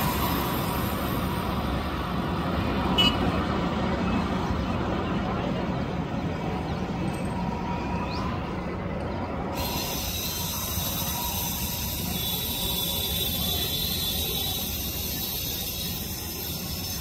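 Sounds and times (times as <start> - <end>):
jet airliner rumble and hiss: 0.0 - 17.0
bright high hiss: 9.6 - 17.0.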